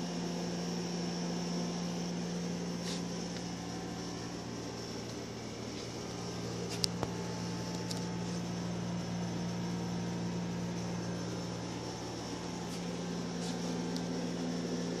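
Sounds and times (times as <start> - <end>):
machine low hum: 0.0 - 15.0.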